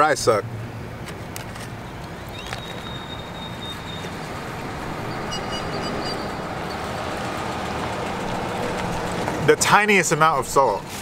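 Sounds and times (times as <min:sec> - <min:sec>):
vehicle driving past: 0:02.3 - 0:10.8.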